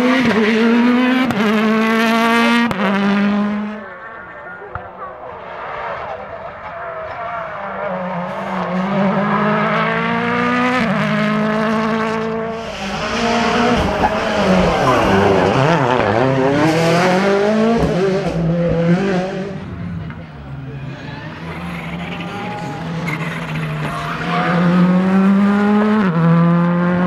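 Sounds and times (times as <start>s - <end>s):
rally car engine accelerating: 0.0s - 4.1s, 5.2s - 27.0s
tyres hissing on road: 12.5s - 15.5s.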